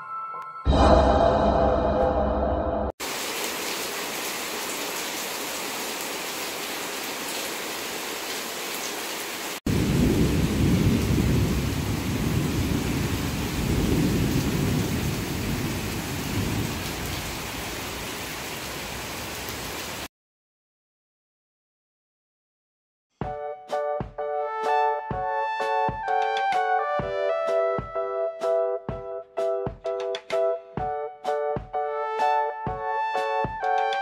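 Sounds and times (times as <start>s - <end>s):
heavy rain on trees and ground: 3.0s - 20.1s.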